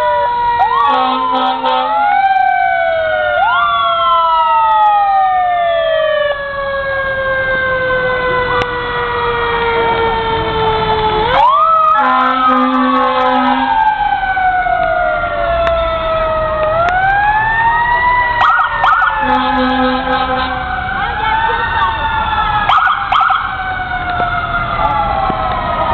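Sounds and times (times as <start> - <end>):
sirens wailing: 0.0 - 25.9.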